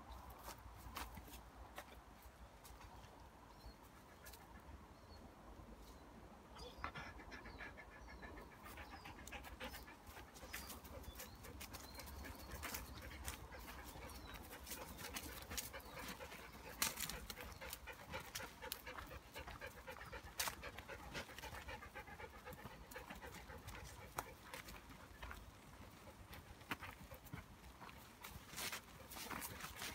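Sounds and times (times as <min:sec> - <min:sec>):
dog panting: 0:06.6 - 0:29.9.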